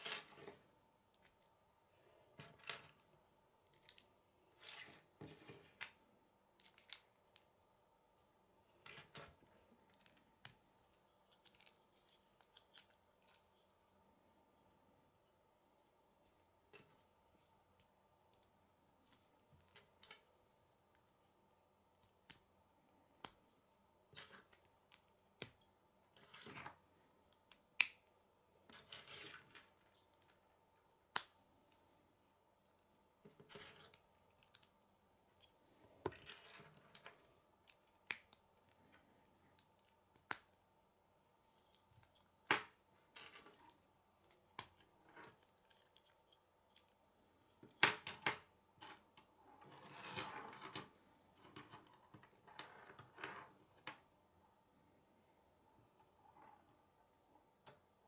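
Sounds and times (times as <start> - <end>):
plastic pieces clicking together: 6.6 - 7.4.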